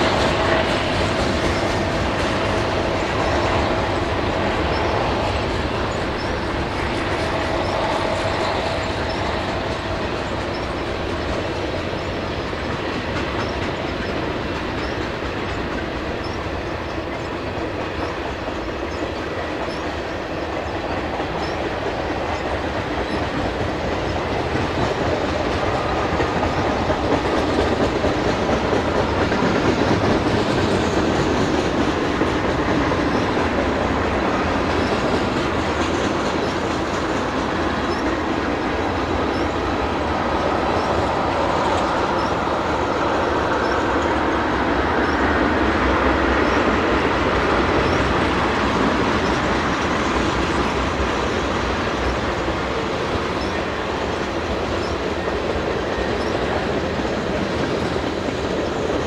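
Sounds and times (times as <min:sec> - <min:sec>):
freight train wheels on rails: 0:00.0 - 0:59.0.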